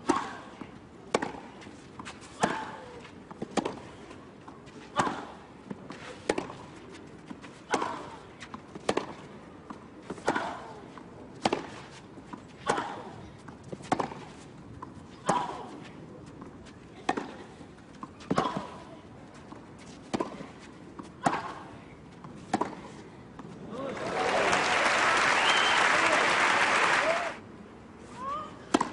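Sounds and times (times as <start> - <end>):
tennis ball hit by rackets: 1.1 - 1.5, 7.7 - 9.2, 10.1 - 10.8, 11.4 - 11.9, 13.8 - 14.2, 20.0 - 20.5, 22.5 - 22.8.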